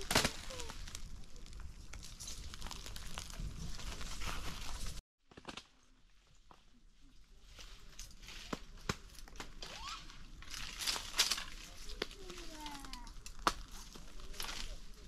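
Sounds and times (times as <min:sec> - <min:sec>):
rustling handling noise: 0:07.4 - 0:15.0.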